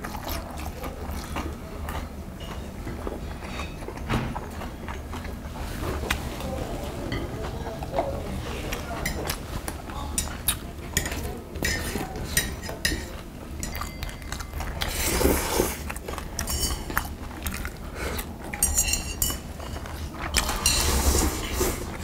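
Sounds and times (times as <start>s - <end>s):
chewing: 0.0s - 22.0s
metal utensils clinking on bowls: 8.8s - 17.8s, 18.4s - 22.0s
slurping from bowl: 14.8s - 15.9s, 20.5s - 22.0s.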